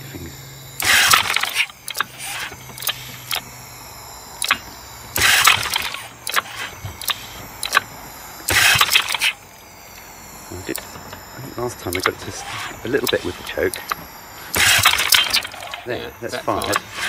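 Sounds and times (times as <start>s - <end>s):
recoil starter cranking: 0.0s - 17.0s
small clicks: 0.7s - 17.0s.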